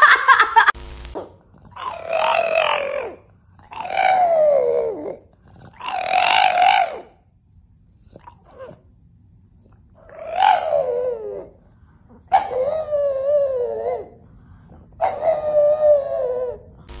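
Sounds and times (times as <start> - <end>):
dog howling: 1.7 - 7.2, 10.0 - 11.6, 12.3 - 14.2, 15.0 - 16.8.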